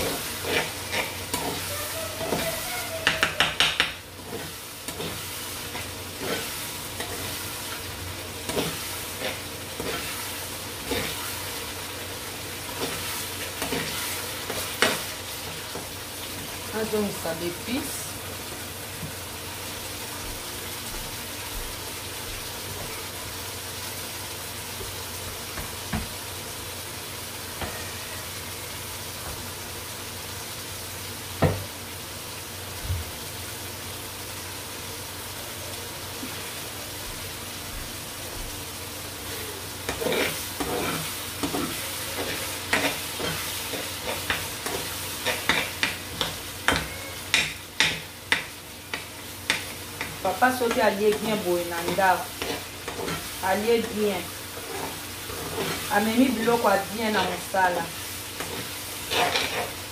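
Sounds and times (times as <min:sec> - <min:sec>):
metal spoon scraping a pan: 0:00.0 - 0:07.8, 0:08.5 - 0:10.2, 0:39.9 - 0:50.2, 0:51.1 - 0:56.0, 0:57.1 - 0:57.4, 0:58.4 - 0:59.9
sauce frying in a pan: 0:00.0 - 0:59.9.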